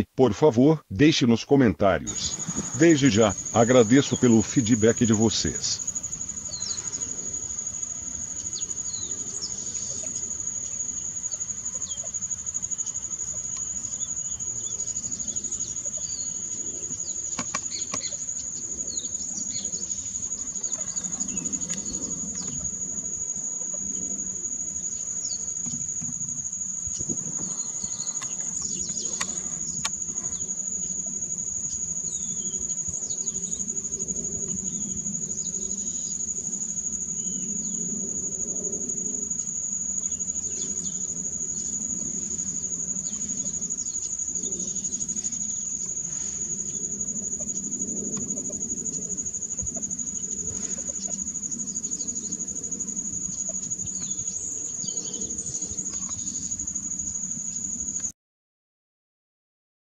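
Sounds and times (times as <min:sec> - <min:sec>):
insect trilling: 0:02.0 - 0:58.1
faint bird chirps: 0:02.1 - 0:07.5.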